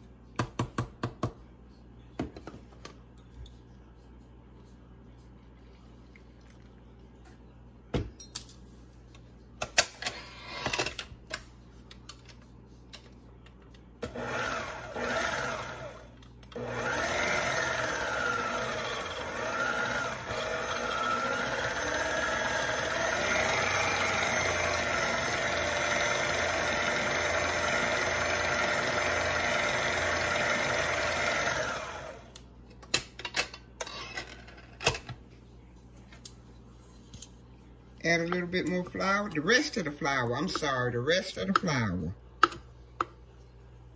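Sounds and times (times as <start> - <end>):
electric mixer beating batter: 14.1 - 16.0, 16.6 - 32.3.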